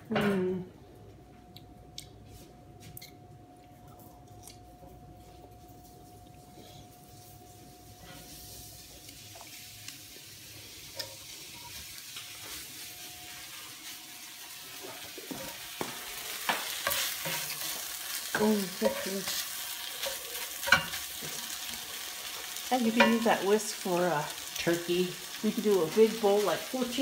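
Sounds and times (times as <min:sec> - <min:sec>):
eggs sizzling in a skillet: 0:07.3 - 0:27.0
spatula scraping a skillet: 0:14.8 - 0:23.5.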